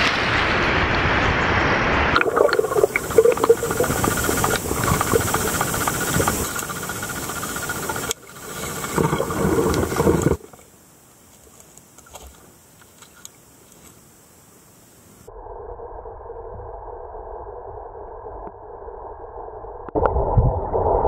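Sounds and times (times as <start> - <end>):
turbulent water underwater: 0.0 - 11.2, 19.9 - 21.0
small ticks: 2.9 - 10.7, 11.3 - 14.2.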